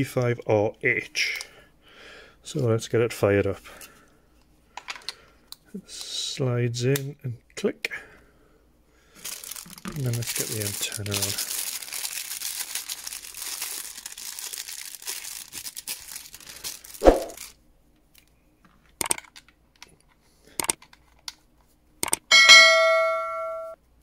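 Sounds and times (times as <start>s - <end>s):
plastic wrapping crinkling: 9.1s - 17.6s
sharp clicks: 19.0s - 19.4s, 20.6s - 20.9s, 22.0s - 22.3s
bell-like ding: 22.3s - 23.8s.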